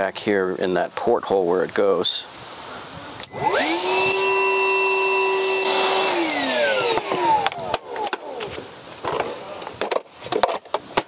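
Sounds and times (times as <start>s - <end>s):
shop vacuum motor whining: 3.2s - 8.6s.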